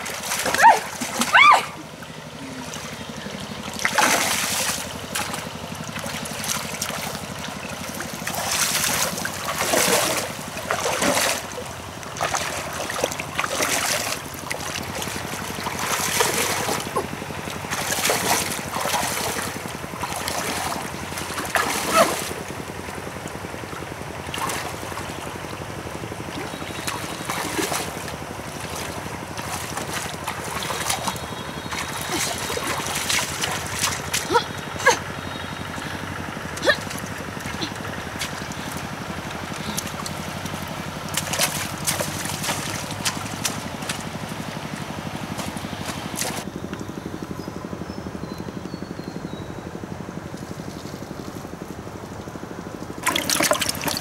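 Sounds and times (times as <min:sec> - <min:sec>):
splashing in muddy water: 0:00.0 - 0:46.6, 0:52.8 - 0:54.0
water pump engine running: 0:00.0 - 0:54.0.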